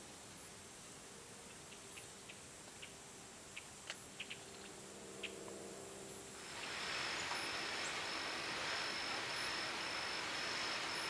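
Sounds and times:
steady hiss: 0.0 - 11.0
thin high buzzing tone: 4.8 - 11.0.

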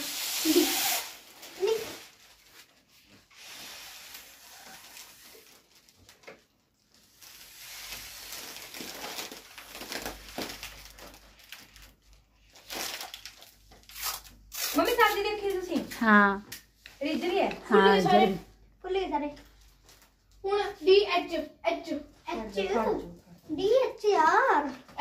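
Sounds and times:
foil balloons crinkling: 0.0 - 15.7.

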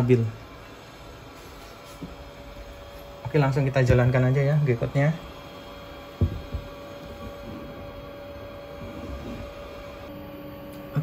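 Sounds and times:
steady hum: 0.0 - 11.0
short knocks: 6.2 - 6.8.

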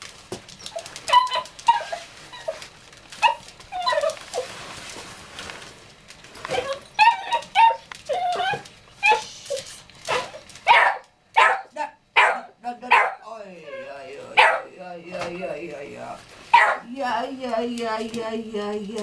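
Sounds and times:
small dog whining and yipping: 0.6 - 2.6, 3.2 - 4.5, 6.5 - 10.4.

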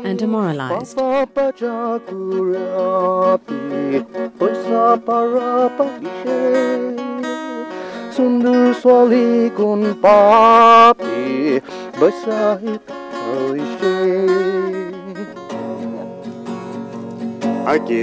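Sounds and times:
acoustic guitar: 0.0 - 18.0
man singing: 0.6 - 18.0.

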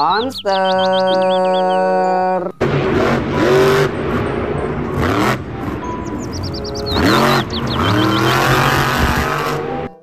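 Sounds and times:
high-pitched chirps: 0.0 - 2.0, 5.8 - 8.8
truck engine revving: 2.6 - 10.0.

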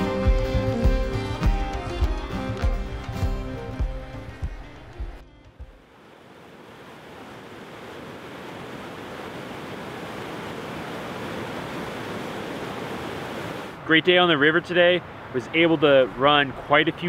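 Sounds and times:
whitewater rushing: 5.8 - 17.0.

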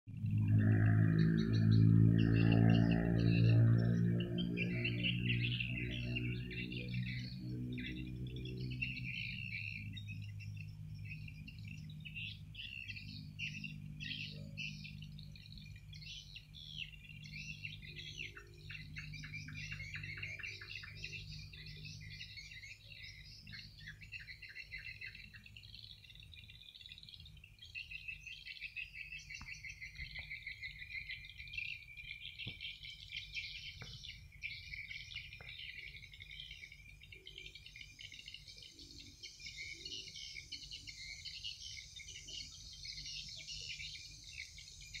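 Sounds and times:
crickets and insects chirping: 0.6 - 45.0
fast pulsed insect trills: 14.6 - 45.0.

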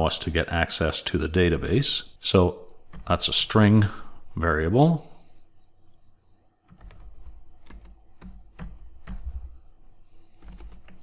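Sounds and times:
keyboard typing clicks: 6.7 - 9.4, 10.4 - 11.0.

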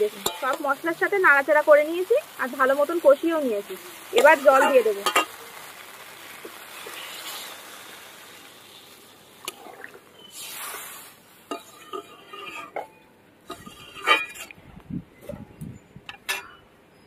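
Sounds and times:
water sizzling in hot pan: 0.0 - 14.5
metal spatula scraping pan: 11.5 - 14.5.

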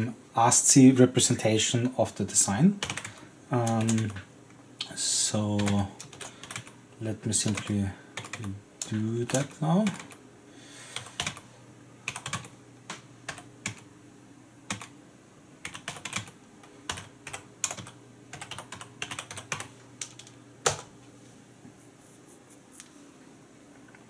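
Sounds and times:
computer keyboard typing: 2.8 - 4.2, 5.5 - 6.8, 7.4 - 10.2, 11.0 - 11.4, 12.0 - 13.9, 14.7 - 14.9, 15.6 - 20.9.

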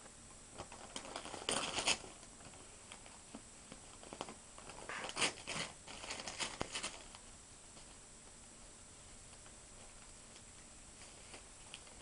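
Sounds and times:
paper crackles: 0.5 - 7.2
cat tearing newspaper: 0.6 - 2.3, 3.9 - 7.2.

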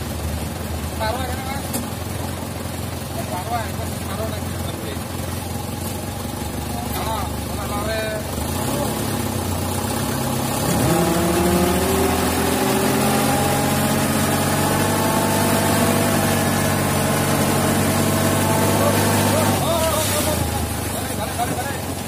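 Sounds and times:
dump truck engine revving: 6.7 - 22.0.

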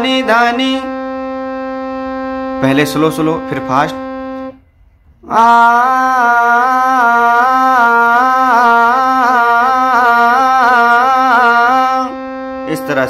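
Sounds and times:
harmonium: 0.0 - 13.0
person singing vocal exercise: 5.2 - 13.0.

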